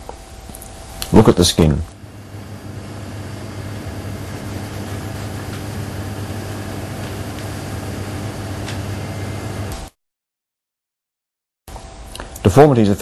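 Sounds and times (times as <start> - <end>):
low even hum: 0.0 - 9.9
steady background hiss: 0.0 - 9.9, 11.7 - 13.0.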